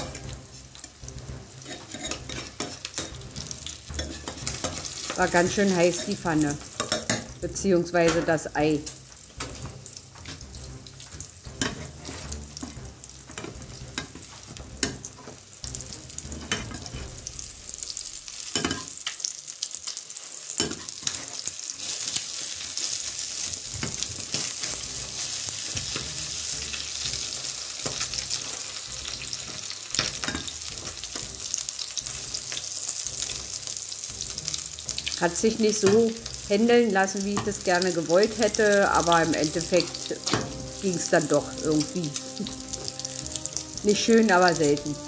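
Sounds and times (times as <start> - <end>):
metal spatula scraping a pan: 0.0 - 7.4, 9.3 - 17.3, 20.4 - 35.2
egg sizzling in a pan: 0.0 - 45.0.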